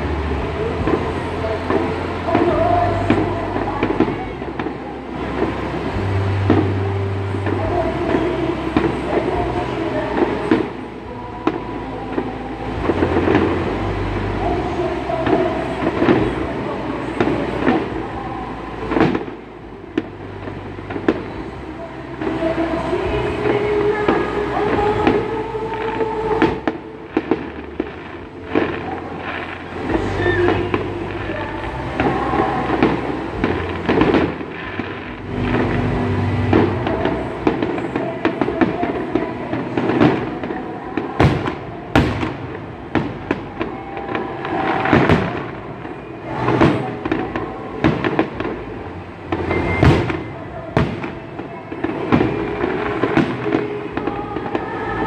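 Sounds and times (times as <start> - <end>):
distant fireworks bangs: 0.0 - 55.0
low rumble: 0.0 - 55.0.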